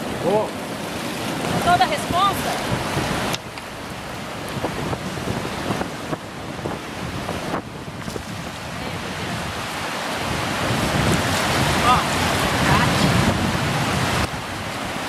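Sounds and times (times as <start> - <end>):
river rapids rushing: 0.0 - 15.0
wind buffeting microphone: 0.0 - 15.0.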